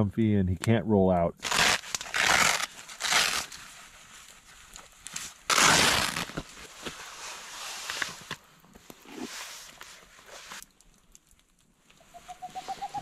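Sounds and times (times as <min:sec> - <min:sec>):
boot rustling and scuffing: 0:03.2 - 0:10.7.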